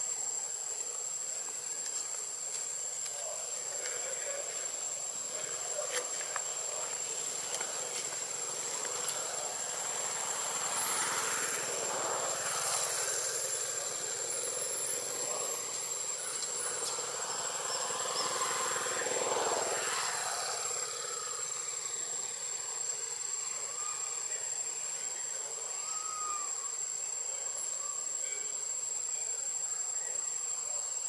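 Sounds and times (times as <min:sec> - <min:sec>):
insect whine: 0:00.0 - 0:31.0
distant engine drone: 0:03.2 - 0:24.2.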